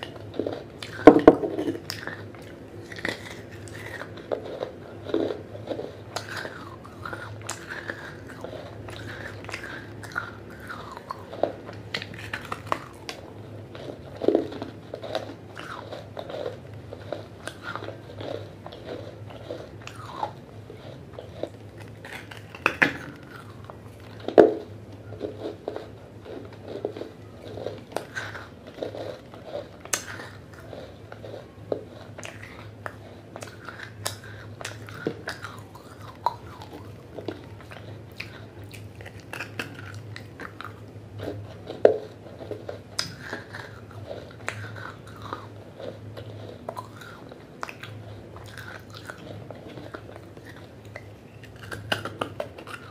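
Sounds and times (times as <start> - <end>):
chewing gritty clay: 0.0 - 52.9.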